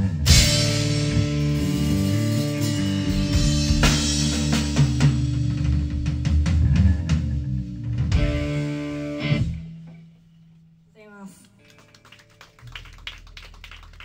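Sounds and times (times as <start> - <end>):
rock band playing live: 0.0 - 10.1
drum hits and cymbal crashes: 0.2 - 6.7.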